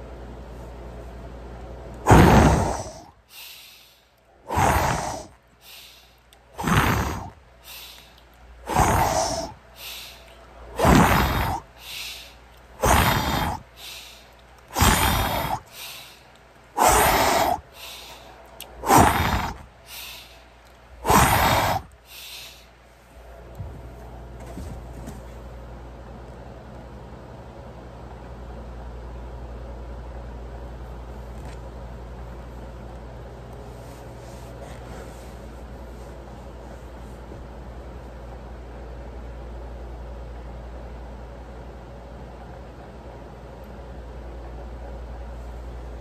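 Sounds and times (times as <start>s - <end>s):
man breathing hard: 2.1s - 22.8s.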